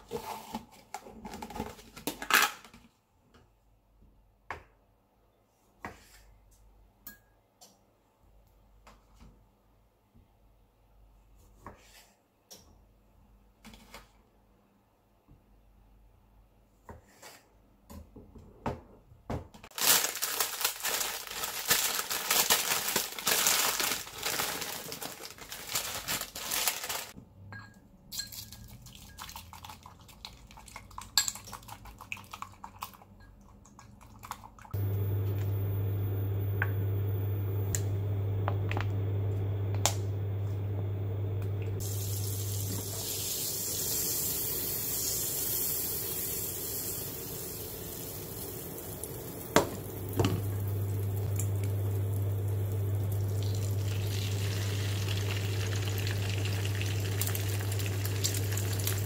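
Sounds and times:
tap water running: 0:34.8 - 0:40.1, 0:41.4 - 0:59.0
cooktop humming: 0:34.8 - 0:59.0
water heating hiss: 0:41.7 - 0:59.0.

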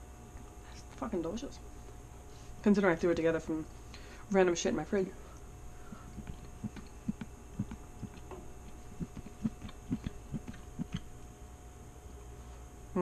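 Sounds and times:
person chewing food: 0:05.8 - 0:11.1.

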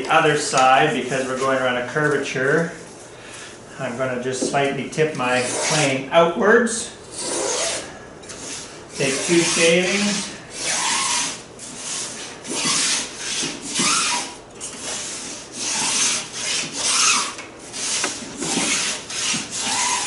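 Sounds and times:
hand plane shaving wood: 0:08.4 - 0:20.0.

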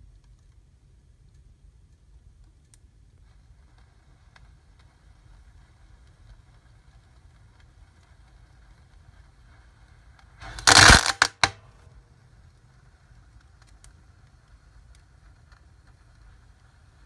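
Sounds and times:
fire crackling: 0:00.0 - 0:17.0
firework burst: 0:03.4 - 0:13.6
sharp cracks: 0:10.4 - 0:16.2.

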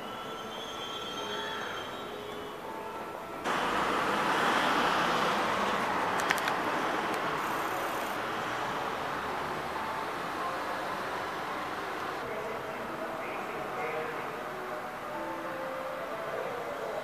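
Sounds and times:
vehicle rushing past: 0:03.5 - 0:12.2.

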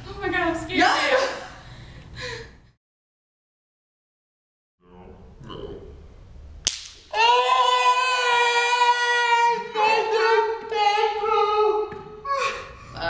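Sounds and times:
sharp snap: 0:06.6 - 0:07.1.

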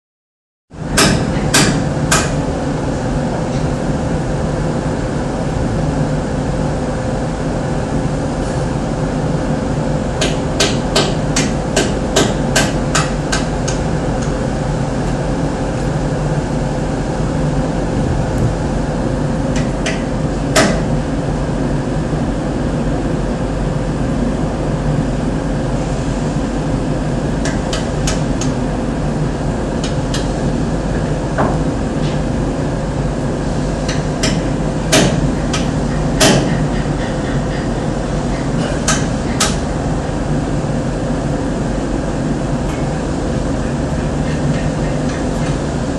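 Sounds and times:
sharp hammer-like knocks: 0:01.0 - 0:02.4.

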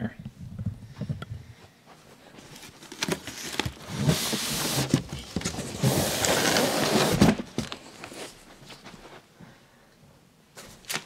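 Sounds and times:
foam packing scraping cardboard: 0:03.2 - 0:08.4.

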